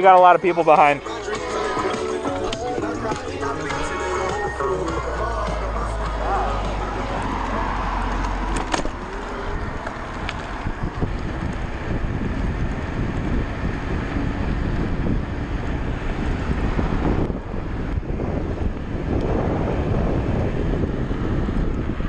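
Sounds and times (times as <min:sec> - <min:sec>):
steady low rumble: 0:01.0 - 0:22.0
wind buffeting microphone: 0:04.4 - 0:22.0.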